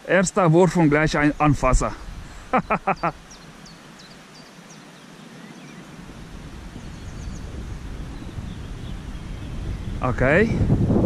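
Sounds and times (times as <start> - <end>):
man's voice: 0.0 - 2.0
wind noise on microphone: 0.8 - 3.2, 5.8 - 11.0
high bird chirps: 2.5 - 5.8.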